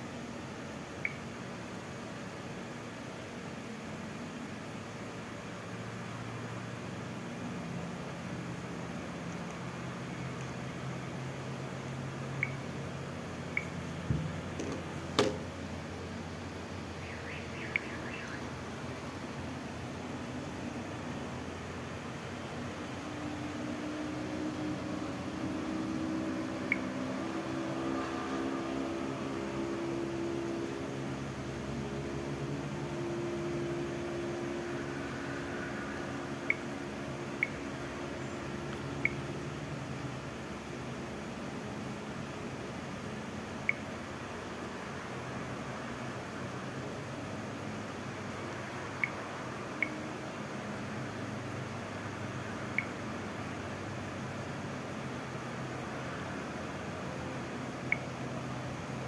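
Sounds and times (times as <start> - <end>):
background hum with low tones: 0.0 - 59.0
room background hiss: 0.0 - 59.0
faint high chirps: 12.3 - 12.7, 16.9 - 19.0, 38.2 - 39.3.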